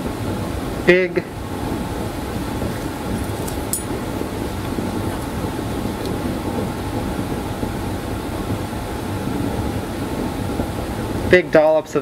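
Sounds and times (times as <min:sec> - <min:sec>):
air handling hum and hiss: 0:00.0 - 0:12.0.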